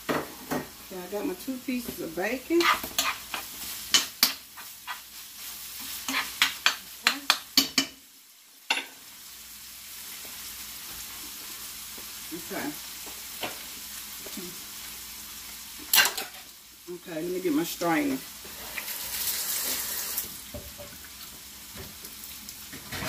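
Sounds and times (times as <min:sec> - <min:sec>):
meat sizzling in a skillet: 0:00.0 - 0:23.0
utensil scraping a pan: 0:02.5 - 0:05.1, 0:05.8 - 0:06.8.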